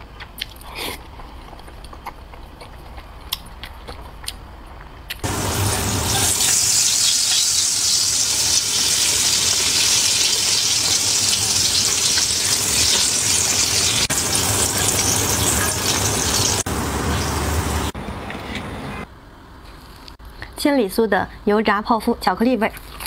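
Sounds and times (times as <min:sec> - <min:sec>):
food deep-frying in oil: 0:05.2 - 0:18.0.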